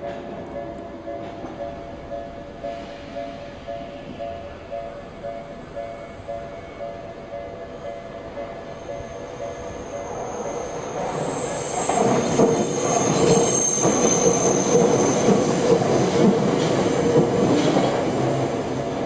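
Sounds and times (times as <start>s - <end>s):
level crossing warning bell: 0.0s - 11.0s
electric train running past: 0.0s - 19.0s
wheel squeal on rails: 9.2s - 16.7s.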